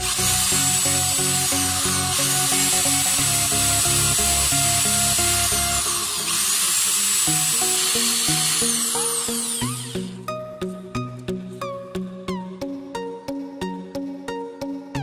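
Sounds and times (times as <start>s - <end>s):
rotary tool grinding metal: 0.0s - 10.2s
background music with plucked melody: 0.0s - 15.0s.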